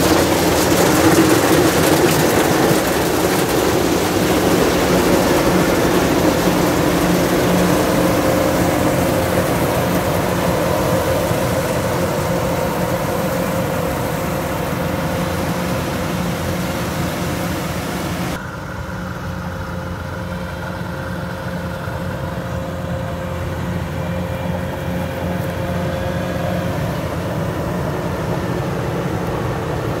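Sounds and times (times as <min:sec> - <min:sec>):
combine harvester engine running: 0:00.0 - 0:30.0.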